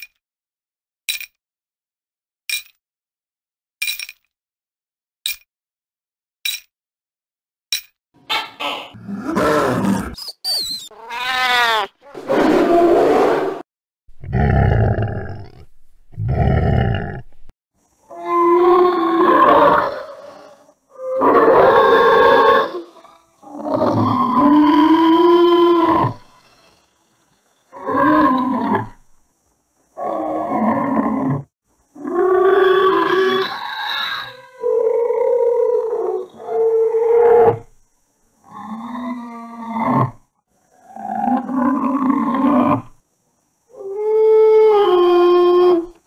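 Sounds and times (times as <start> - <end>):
cat-like animal call: 8.3 - 13.6, 32.2 - 37.6
animal growl: 8.9 - 10.2, 14.2 - 17.4, 18.1 - 26.2, 38.5 - 43.0
deep animal roars: 9.0 - 10.2, 14.2 - 17.5.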